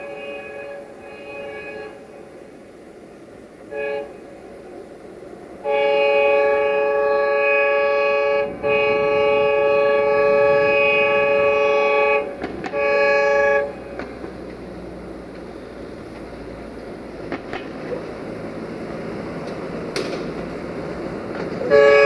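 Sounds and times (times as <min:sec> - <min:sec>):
locomotive horn blasts: 0:00.0 - 0:02.4, 0:03.6 - 0:04.4, 0:05.6 - 0:14.2, 0:21.3 - 0:22.0
low rumble of train: 0:00.0 - 0:22.0.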